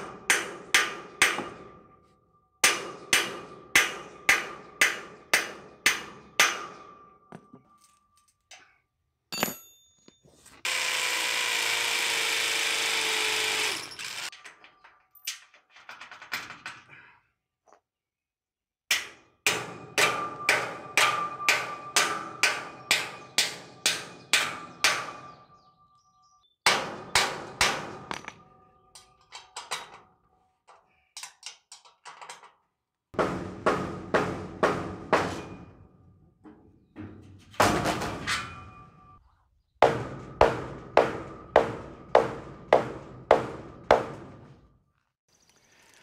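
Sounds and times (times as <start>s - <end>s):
hammer striking steel: 0.0s - 8.7s, 18.9s - 25.7s, 26.6s - 29.3s, 39.8s - 44.5s.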